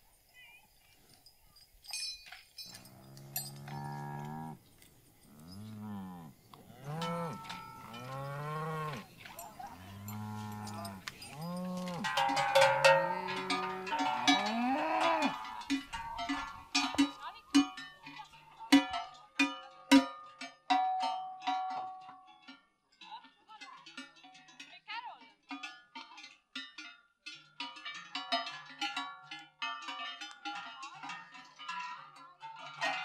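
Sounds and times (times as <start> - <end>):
cowbells clanging: 0.0 - 33.0
cows mooing: 2.7 - 4.6, 5.3 - 15.8.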